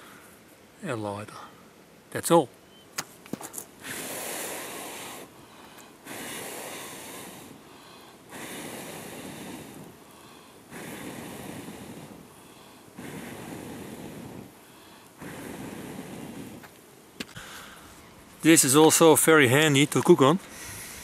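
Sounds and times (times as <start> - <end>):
person blowing on a fire: 3.8 - 18.2, 20.5 - 21.0.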